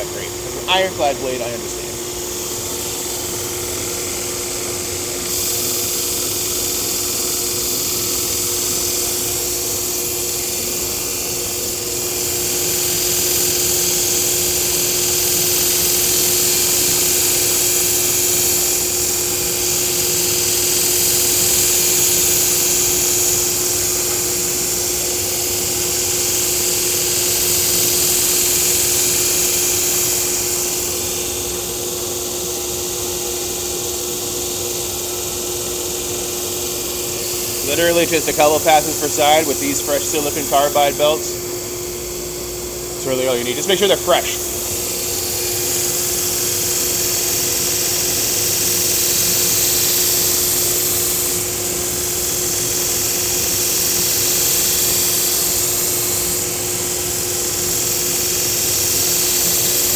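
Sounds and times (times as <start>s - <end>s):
belt grinder motor hum: 0.0s - 59.9s
blade grinding on belt: 37.0s - 41.4s, 42.1s - 59.9s.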